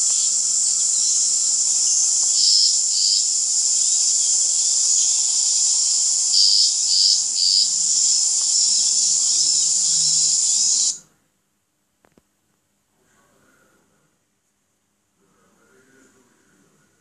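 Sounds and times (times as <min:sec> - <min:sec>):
insects chorus: 0:00.0 - 0:11.0.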